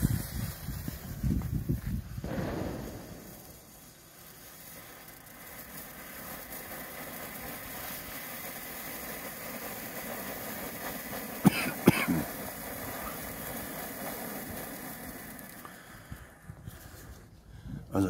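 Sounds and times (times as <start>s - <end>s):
firework fountain hissing: 0.0s - 17.3s
sharp cracks: 2.2s - 10.2s.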